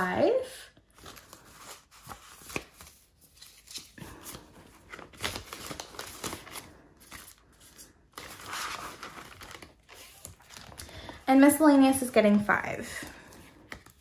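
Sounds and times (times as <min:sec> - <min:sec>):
binder pages turning: 0:00.9 - 0:11.2, 0:13.2 - 0:14.0
banknotes and plastic pouches rustling: 0:00.9 - 0:12.1.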